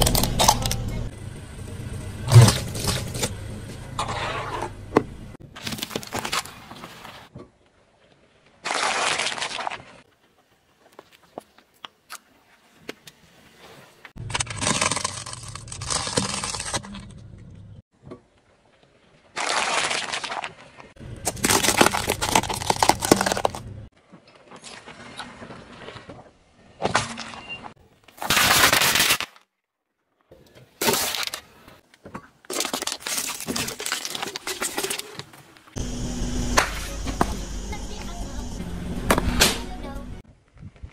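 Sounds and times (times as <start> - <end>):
tyre crushing objects: 21.2 - 23.7.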